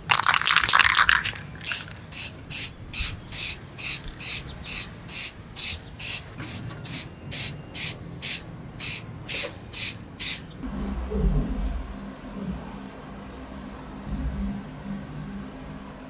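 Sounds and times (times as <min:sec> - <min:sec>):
spray paint can hissing: 0:00.0 - 0:10.6.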